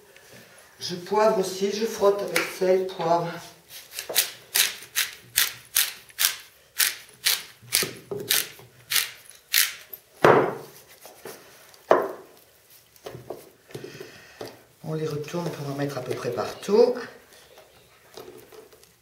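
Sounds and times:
pepper mill grinding: 0:03.9 - 0:10.0.

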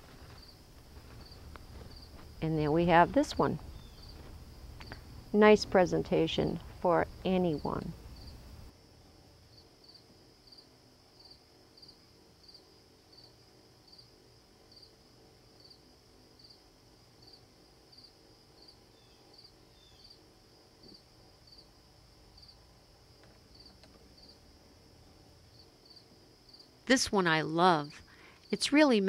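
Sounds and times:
insect chirping trill: 0:00.2 - 0:08.8, 0:09.4 - 0:29.0.

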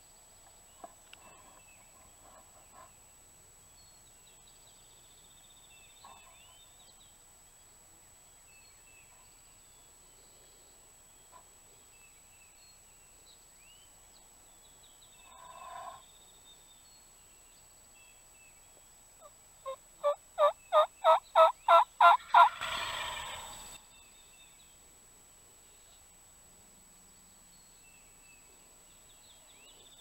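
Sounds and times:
songbird chirps: 0:00.0 - 0:30.0
turkey hen yelps: 0:20.0 - 0:23.5
turkey gobbling: 0:20.0 - 0:23.6.

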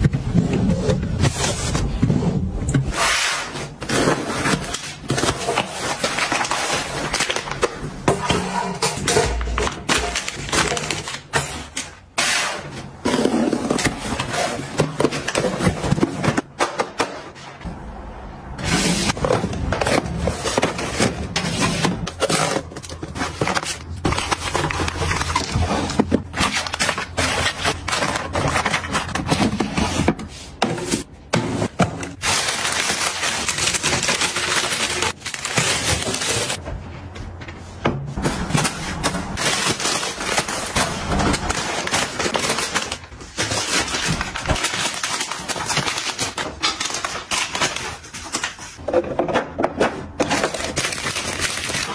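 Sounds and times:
plastic packaging crinkling: 0:32.1 - 0:36.6.

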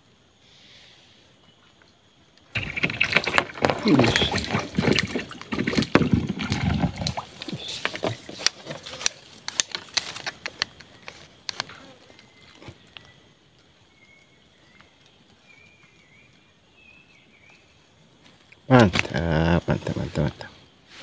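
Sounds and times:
fish splashing and slapping: 0:02.6 - 0:10.6.

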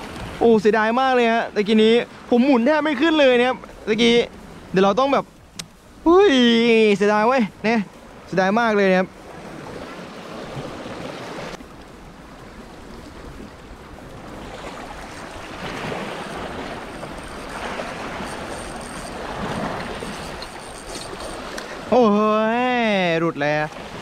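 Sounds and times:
waves lapping against rocks: 0:09.2 - 0:24.0.

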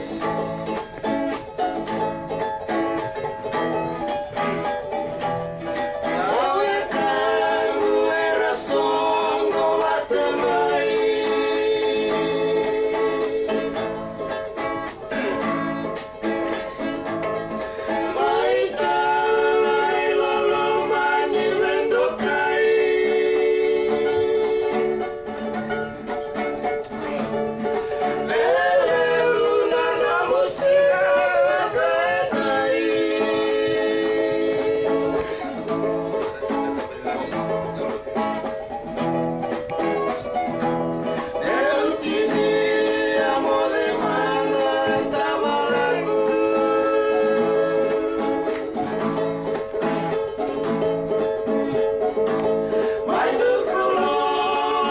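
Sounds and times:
acoustic guitars strummed: 0:00.0 - 0:54.9
man singing: 0:17.9 - 0:25.1, 0:28.0 - 0:35.6, 0:41.1 - 0:48.8, 0:52.8 - 0:54.9.

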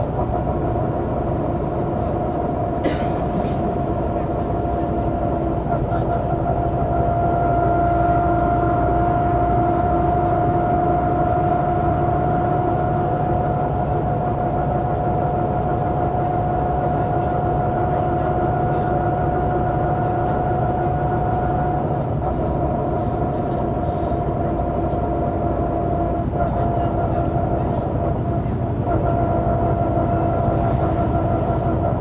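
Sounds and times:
bus engine rumble: 0:00.0 - 0:32.0.

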